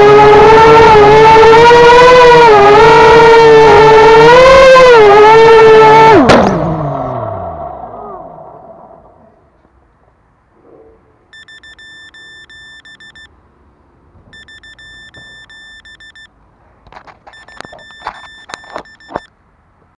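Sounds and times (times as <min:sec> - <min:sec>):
rapid high electronic beeping: 0:11.4 - 0:13.3, 0:14.4 - 0:16.3, 0:17.3 - 0:19.3
sharp clicks and knocks: 0:16.8 - 0:19.9.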